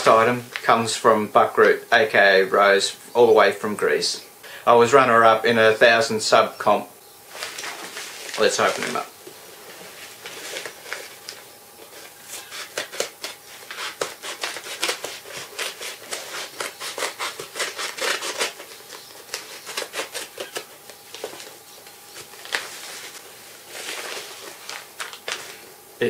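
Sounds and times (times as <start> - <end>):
paper rustling: 7.3 - 25.7
paper mailer being cut and torn: 12.2 - 20.8.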